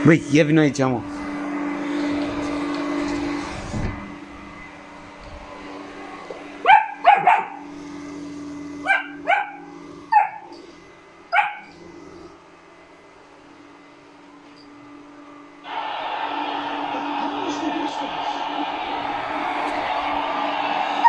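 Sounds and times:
robot vacuum cleaner humming: 0:00.8 - 0:21.0
puppy barking: 0:06.6 - 0:07.6, 0:08.8 - 0:10.6, 0:11.3 - 0:11.8.

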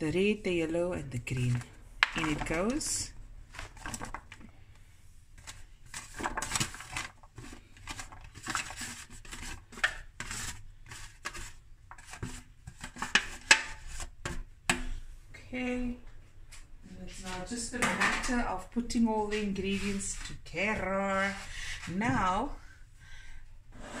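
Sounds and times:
utensil scraping bowl: 0:19.0 - 0:22.4.

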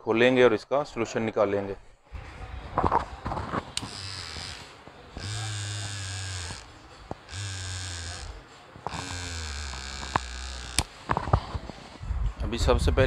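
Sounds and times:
hair trimmer motor buzzing: 0:02.2 - 0:11.7
trimmer clicks: 0:03.5 - 0:11.4.

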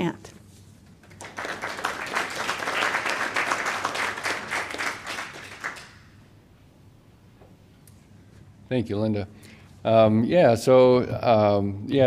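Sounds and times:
audience clapping: 0:01.0 - 0:06.3.

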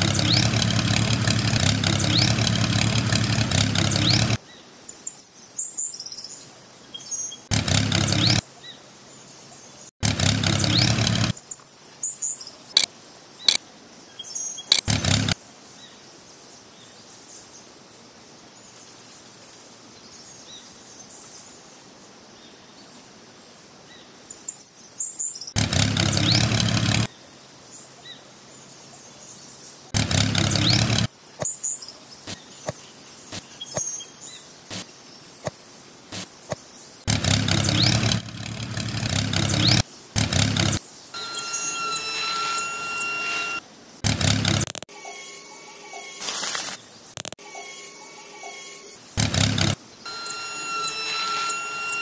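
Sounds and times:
birds chirping: 0:00.0 - 0:16.0, 0:25.2 - 0:27.1, 0:30.0 - 0:35.7, 0:36.4 - 0:43.6
clicks: 0:14.7 - 0:15.4, 0:47.2 - 0:47.4.

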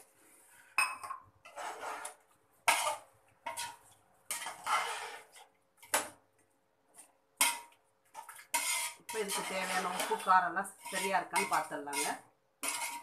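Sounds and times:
metal spoon scraping metal pot: 0:01.4 - 0:05.5, 0:08.4 - 0:13.0.

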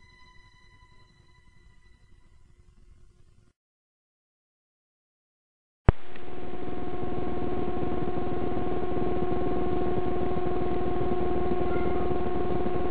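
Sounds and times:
fast buzzing pulse: 0:05.9 - 0:12.9
steady electronic drone: 0:05.9 - 0:12.9.

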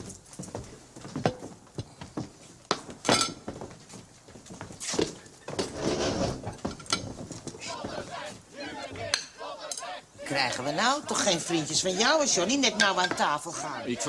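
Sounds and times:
plates and cutlery clinking: 0:03.1 - 0:03.6, 0:11.1 - 0:14.0.

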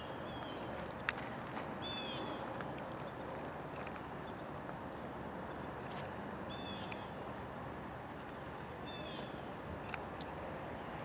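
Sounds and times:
high insect buzz: 0:06.5 - 0:09.8.

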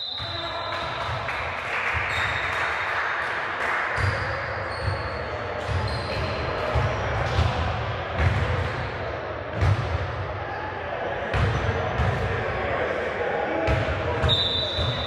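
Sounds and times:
sneaker squeaks: 0:04.0 - 0:07.4, 0:13.7 - 0:15.0
basketball bouncing: 0:05.6 - 0:08.8, 0:09.6 - 0:10.0, 0:11.3 - 0:12.3, 0:13.7 - 0:15.0.

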